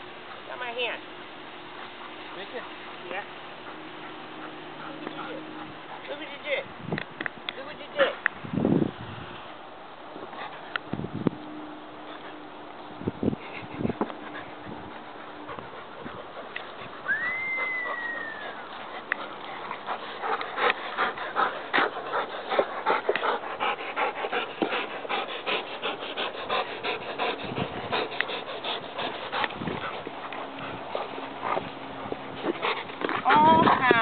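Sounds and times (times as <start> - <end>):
dog whining: 17.0 - 18.7
dog chewing and crunching bark: 24.4 - 34.0.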